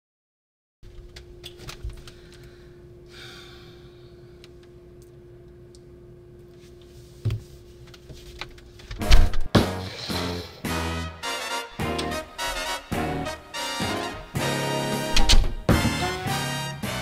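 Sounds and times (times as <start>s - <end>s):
faint hum: 0.8s - 10.7s.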